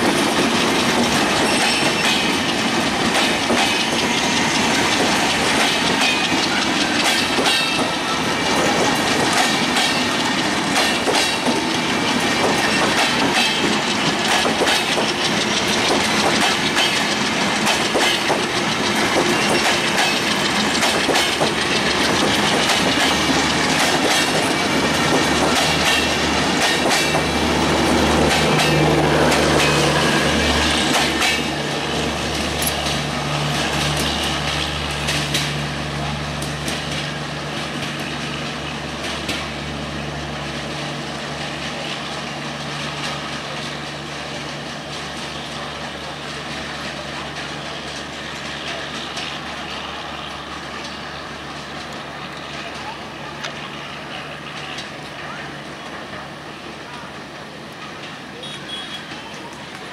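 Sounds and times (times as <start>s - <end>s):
wheels clattering over rail joints: 0.0s - 39.6s
train coaches rumbling past: 0.0s - 59.9s.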